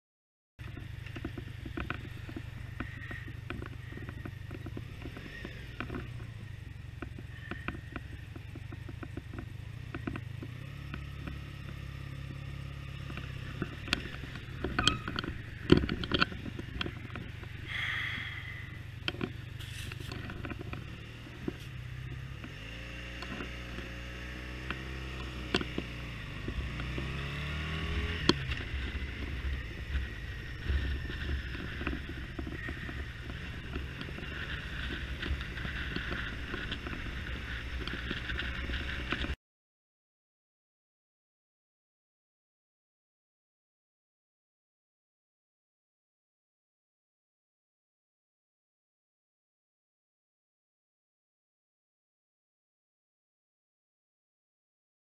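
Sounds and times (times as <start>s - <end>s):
knocks and clatters: 0.6s - 6.4s, 7.0s - 11.8s, 13.0s - 17.6s, 19.0s - 21.7s, 28.1s - 39.4s
motorcycle engine running: 0.6s - 39.4s.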